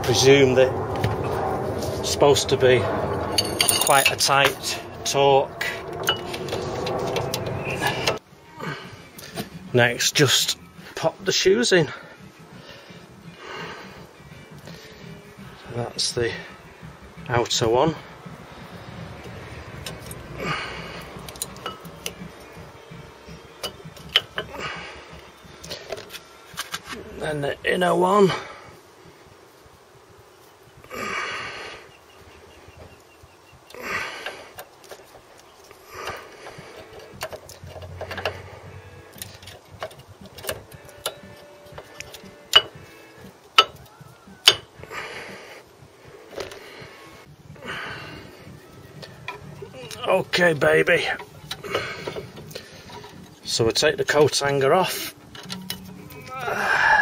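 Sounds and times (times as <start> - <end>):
brake pad scraping: 0.1 - 8.2, 14.5 - 27.3, 33.9 - 48.4, 49.0 - 56.5.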